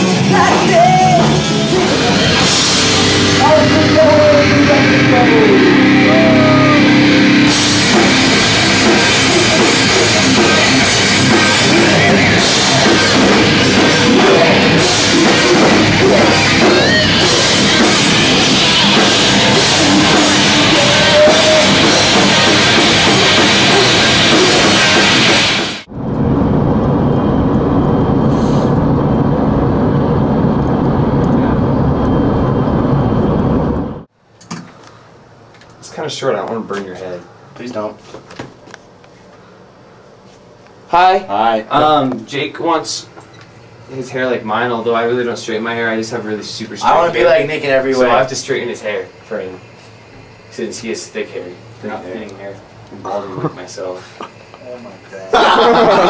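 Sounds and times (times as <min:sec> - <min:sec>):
loud rock music with drums: 0:00.0 - 0:25.9.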